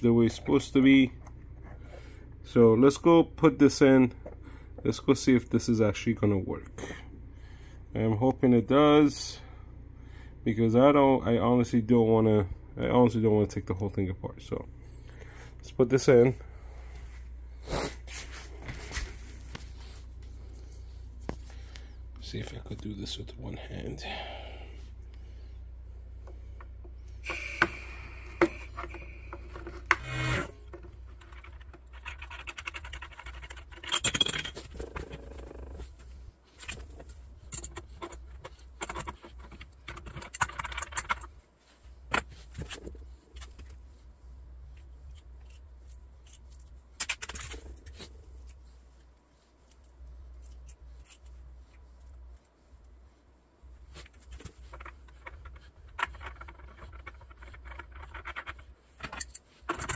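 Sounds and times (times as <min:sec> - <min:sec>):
low steady hum: 0:00.0 - 0:59.9
scraping and clicking of parts: 0:26.2 - 0:53.1, 0:53.7 - 0:59.9.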